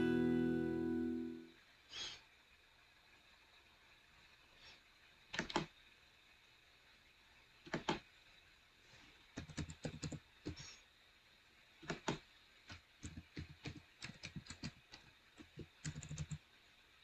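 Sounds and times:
keyboard key clicks: 5.4 - 5.7, 7.7 - 8.0, 11.8 - 12.2.

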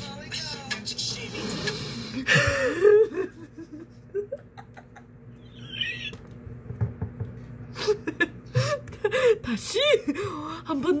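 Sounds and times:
woman giggling: 2.2 - 6.1
woman squealing: 5.4 - 6.2.

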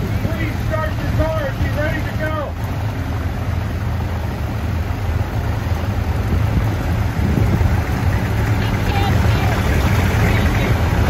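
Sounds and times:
old car engines idling: 0.0 - 11.0.

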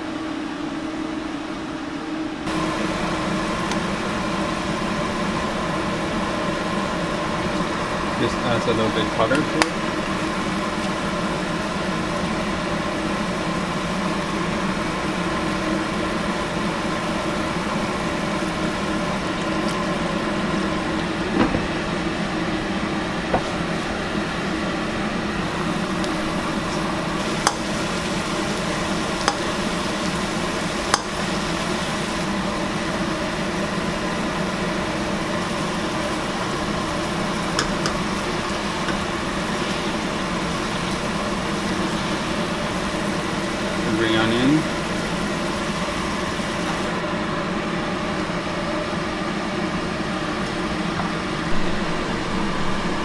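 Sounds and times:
motor-like hum: 0.0 - 53.0
sauce simmering and bubbling: 9.5 - 21.3, 23.4 - 43.8.

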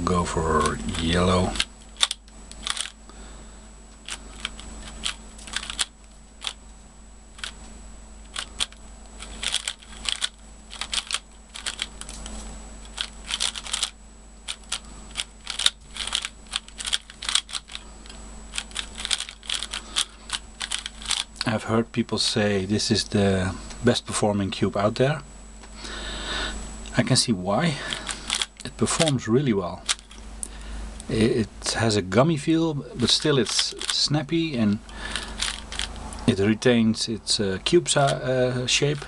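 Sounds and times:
puzzle cube plastic clicks: 0.6 - 3.0, 4.0 - 6.6, 8.2 - 21.5, 27.9 - 29.2, 29.8 - 30.2, 33.0 - 34.0, 34.8 - 36.0.

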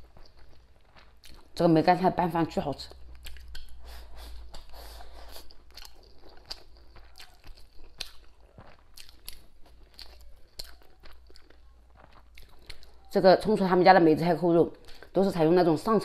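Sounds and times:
chewing and mouth smacking: 0.0 - 1.6, 2.7 - 13.1.

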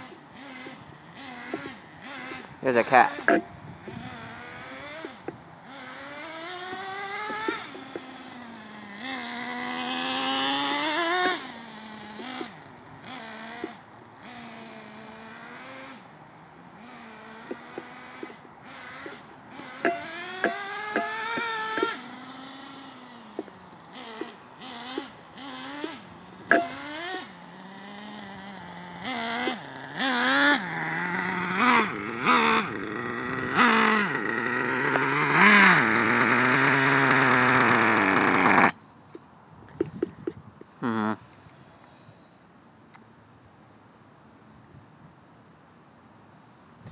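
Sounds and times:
rc truck engine revving: 0.0 - 38.8.

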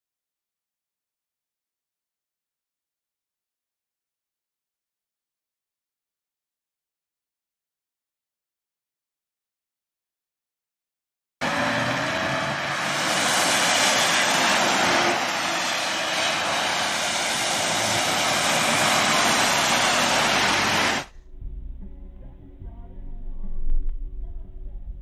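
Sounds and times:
road and wind noise: 11.4 - 21.1
low rumble: 20.1 - 25.0.

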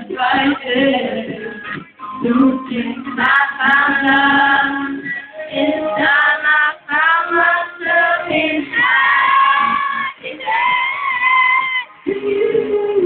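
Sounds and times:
live band pop music: 0.0 - 13.0
woman singing into microphone: 0.0 - 13.0.

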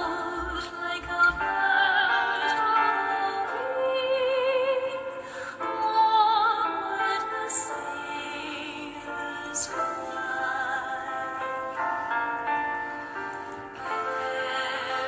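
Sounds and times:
operatic singing with music: 13.6 - 15.0.

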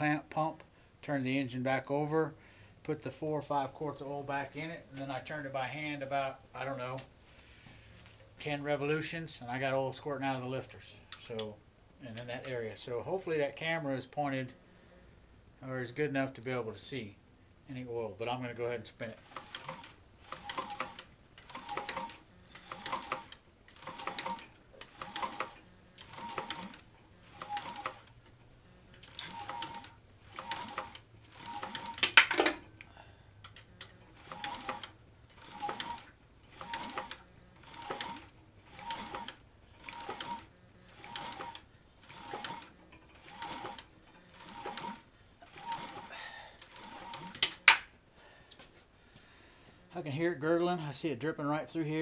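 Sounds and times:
engine clicking turned by hand: 19.2 - 32.6, 33.4 - 47.9.

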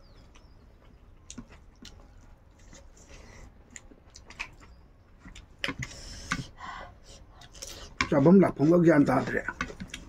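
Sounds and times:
chewing and mouth smacks: 0.0 - 6.6, 9.5 - 10.0.

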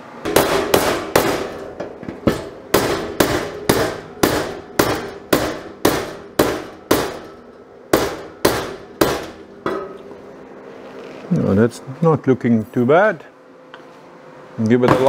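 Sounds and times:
hammer striking sheet steel: 0.0 - 10.0.

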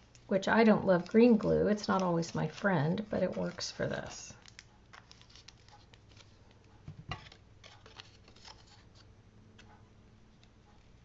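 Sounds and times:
paper taps and rustles: 0.9 - 9.7.

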